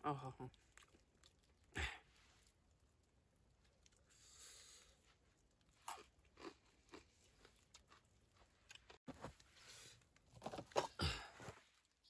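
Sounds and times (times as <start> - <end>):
person chewing crunchy snack: 5.4 - 9.0.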